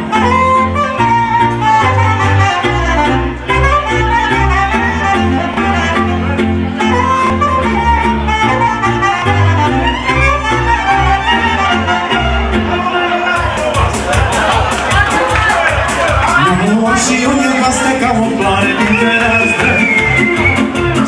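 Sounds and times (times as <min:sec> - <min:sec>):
violin melody: 0:00.0 - 0:13.6
band playing dance tune: 0:00.0 - 0:21.0.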